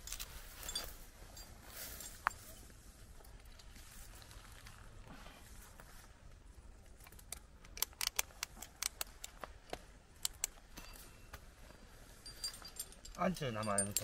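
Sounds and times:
faint outdoor hiss: 0.0 - 14.0
metal climbing hardware clicking: 7.0 - 9.4, 10.2 - 11.0, 12.3 - 14.0.

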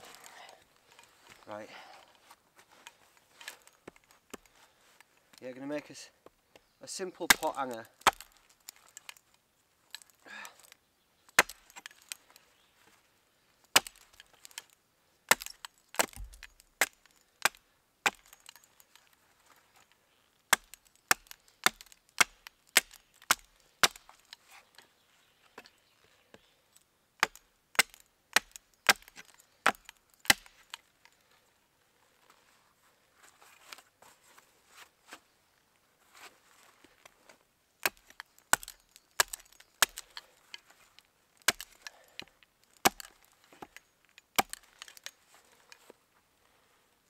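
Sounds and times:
hatchet chopping wood: 7.2 - 8.8, 11.3 - 12.1, 13.7 - 14.7, 15.3 - 18.7, 20.5 - 24.3, 27.2 - 30.8, 37.8 - 40.3, 41.4 - 43.8, 44.4 - 45.1.

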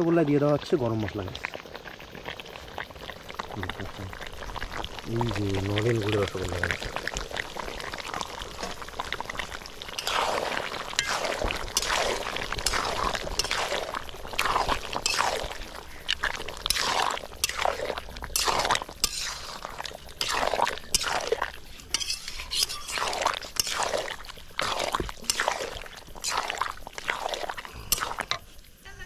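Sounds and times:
thick curry squelching when stirred: 6.8 - 28.6.

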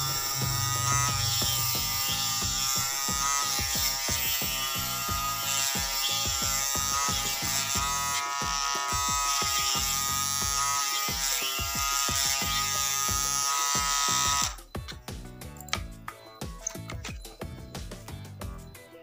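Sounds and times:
electric motor whining: 0.0 - 14.6
background music with steady beat: 0.0 - 19.0.

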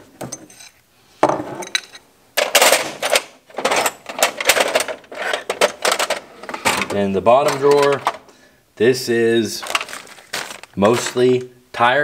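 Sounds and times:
wrenches clattering in drawer: 1.5 - 8.3, 9.6 - 11.4.

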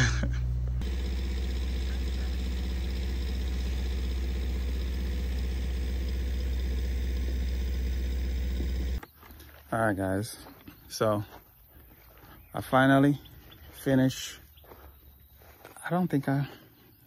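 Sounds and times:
engine idling: 0.0 - 9.0.

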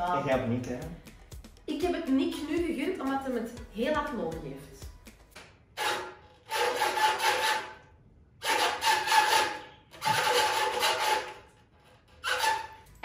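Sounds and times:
rasping strokes: 5.8 - 13.0.

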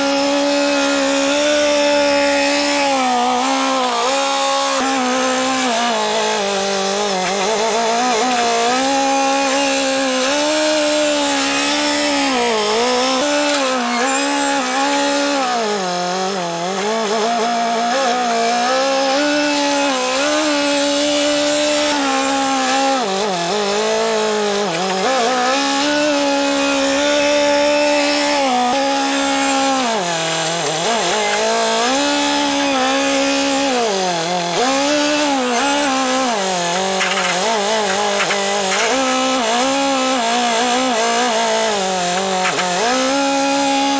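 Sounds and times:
engine running hard: 0.0 - 43.9.

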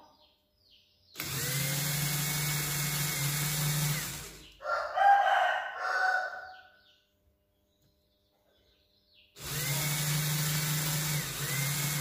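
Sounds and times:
drill motor whining: 1.2 - 4.6, 9.4 - 12.0.

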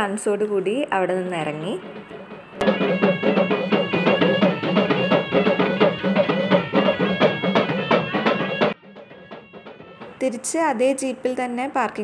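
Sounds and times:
held melody notes: 1.2 - 11.9
hand drum beats: 1.7 - 10.5.

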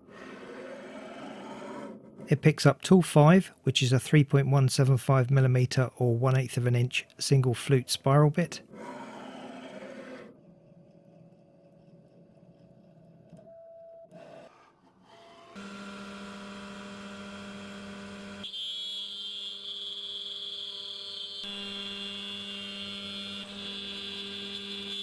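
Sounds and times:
spindle whining over hum: 15.5 - 25.0.

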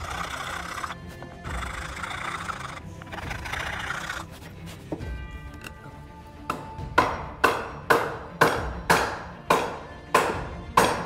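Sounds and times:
hand file rasping on hardwood: 0.0 - 5.1
background music: 0.0 - 11.0.

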